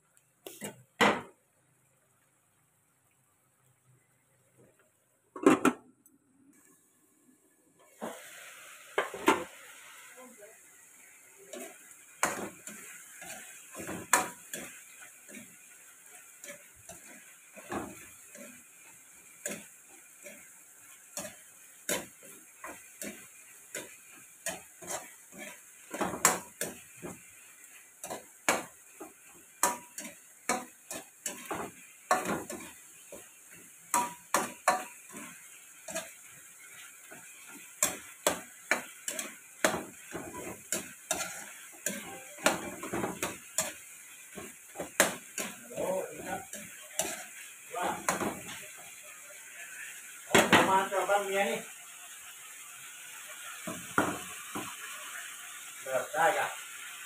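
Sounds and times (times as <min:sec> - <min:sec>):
cooking liquid bubbling: 0:00.0 - 0:10.1, 0:10.7 - 0:50.4
faint sizzle: 0:00.0 - 0:57.0
metal ladle scraping a wok: 0:40.3 - 0:43.0.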